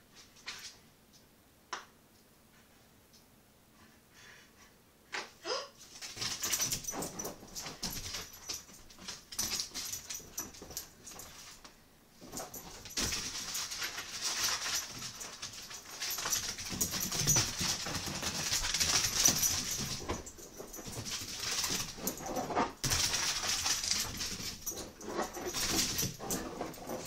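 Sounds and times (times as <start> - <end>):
dog claws skittering on wooden floor: 5.9 - 27.0.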